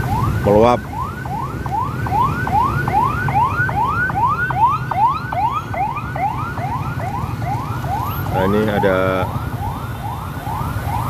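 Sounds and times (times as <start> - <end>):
electronic siren rising sweeps: 0.0 - 11.0.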